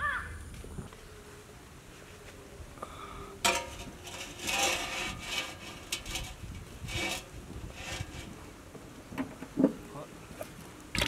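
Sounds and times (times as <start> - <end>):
metal pan scraping on metal grate: 3.4 - 8.6.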